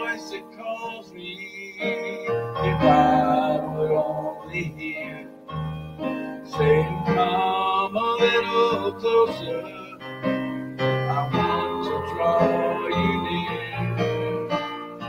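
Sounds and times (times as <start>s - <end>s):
piano playing chords and melody: 0.0s - 15.0s.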